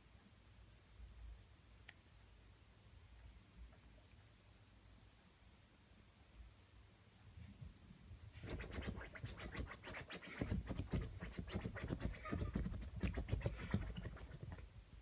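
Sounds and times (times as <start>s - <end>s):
puppy scratching cloth pillow: 8.4s - 14.7s.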